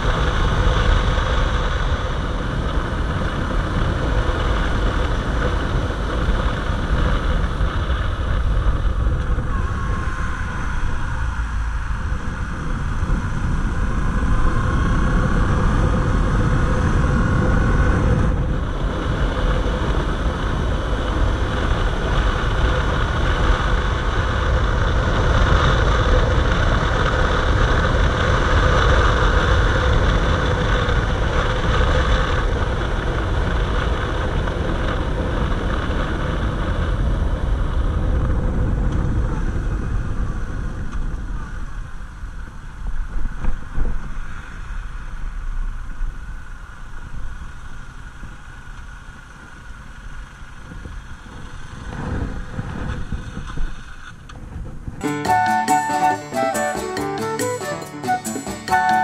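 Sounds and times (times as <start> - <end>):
motorcycle engine: 0.0 - 41.4
wind rushing noise: 0.0 - 46.2.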